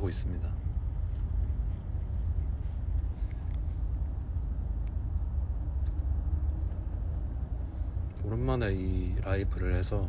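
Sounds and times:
car cabin road and engine rumble: 0.0 - 10.0.

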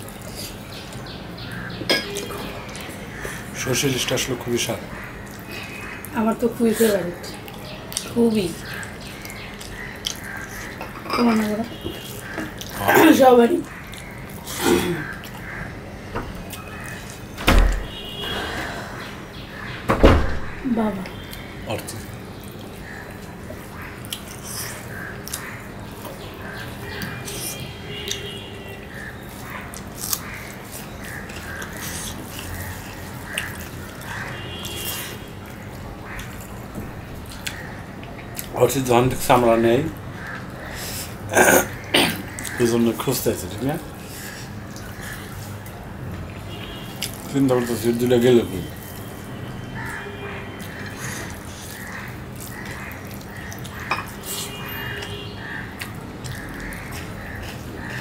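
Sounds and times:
wet chewing and lip smacks: 7.4 - 10.8, 22.4 - 28.2, 28.9 - 36.6, 44.1 - 47.3, 50.6 - 58.0.

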